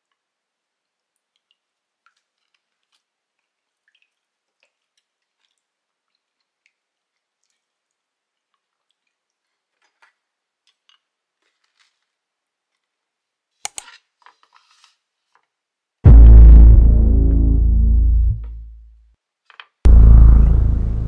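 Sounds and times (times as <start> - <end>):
loud bass-heavy electronic music: 16.1 - 18.8, 19.9 - 21.0.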